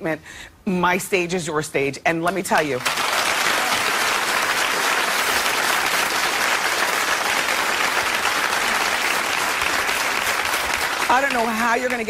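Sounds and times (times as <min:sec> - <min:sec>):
audience applauding: 0:02.8 - 0:12.0.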